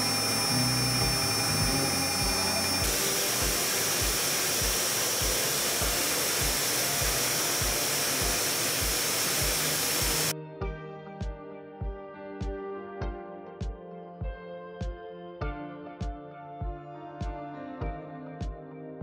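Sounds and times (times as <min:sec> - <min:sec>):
milling machine cutting metal: 0:00.0 - 0:10.3
background music with steady beat: 0:00.0 - 0:19.0.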